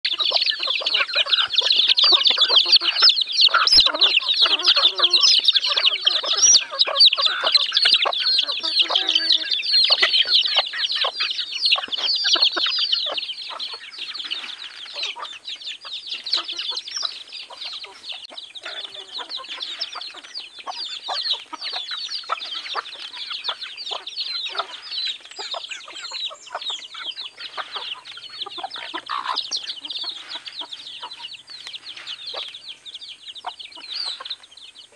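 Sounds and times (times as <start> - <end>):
chickens clucking: 0.0 - 34.9
chicks peeping: 0.0 - 34.9.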